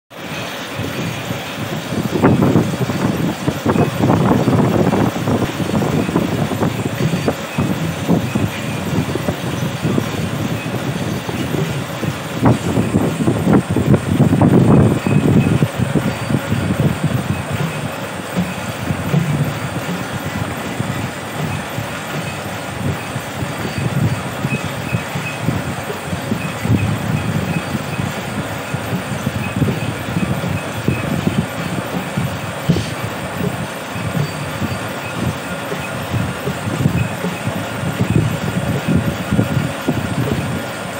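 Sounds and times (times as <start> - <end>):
weaving loom clattering: 0.1 - 40.9.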